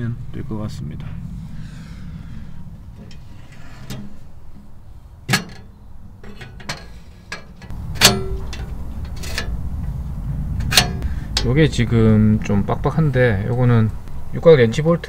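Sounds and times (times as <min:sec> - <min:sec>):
low steady rumble: 0:00.0 - 0:15.0
metal clicks and clanks: 0:03.0 - 0:04.7, 0:05.3 - 0:10.0, 0:10.6 - 0:11.6.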